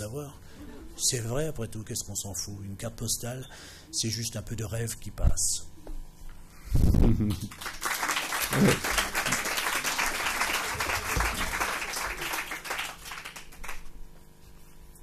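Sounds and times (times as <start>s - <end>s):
audience applauding: 7.4s - 13.9s.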